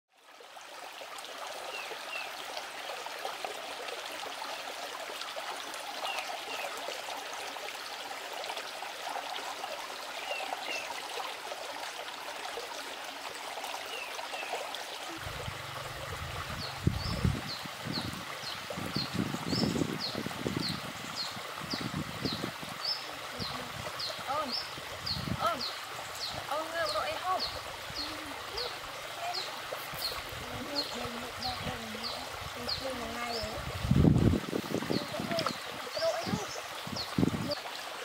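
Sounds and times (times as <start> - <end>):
stream running over rocks: 0.1 - 38.0
low rumbles: 15.2 - 18.2.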